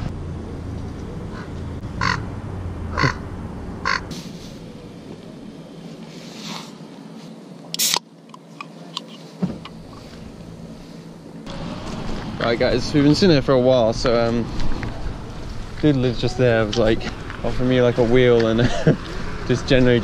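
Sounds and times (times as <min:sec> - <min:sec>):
crow cawing: 0:01.3 - 0:02.3, 0:02.9 - 0:03.2, 0:03.8 - 0:04.1
drink can hissing: 0:07.8 - 0:08.0.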